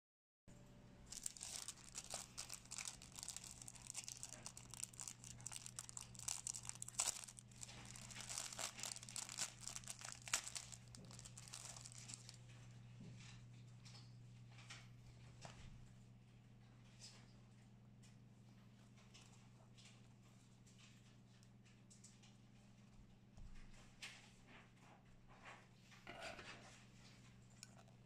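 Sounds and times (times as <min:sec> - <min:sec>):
steady low hum: 0:00.5 - 0:16.8
plastic bag crinkling: 0:01.0 - 0:12.4.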